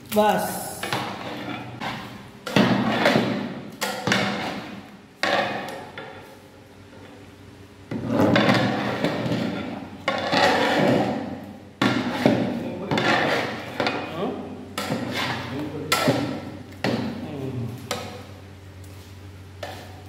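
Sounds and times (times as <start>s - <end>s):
metal ladle scraping a pot: 0.8s - 6.0s, 7.9s - 11.2s, 11.8s - 14.0s, 14.8s - 16.2s.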